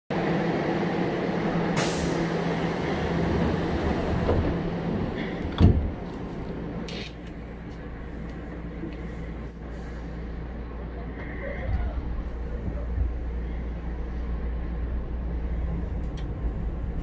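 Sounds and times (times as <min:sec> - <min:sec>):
train steady hum: 0:00.1 - 0:17.0
sliding door thudding shut: 0:05.4 - 0:06.0.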